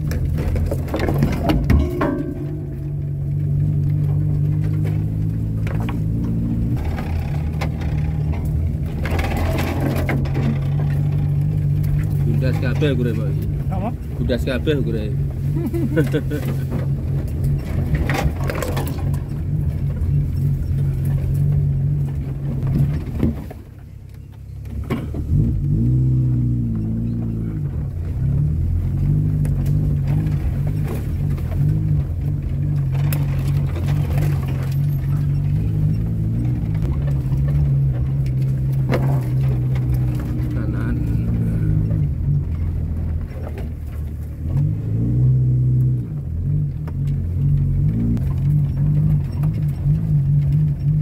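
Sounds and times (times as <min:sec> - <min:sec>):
car engine revving: 0:00.0 - 0:51.0
sharp knocks: 0:00.5 - 0:12.2.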